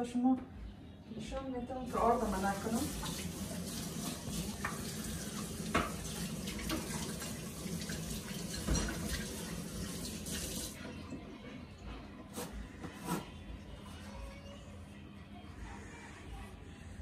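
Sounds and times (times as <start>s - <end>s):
kitchen tap running: 1.9s - 11.0s.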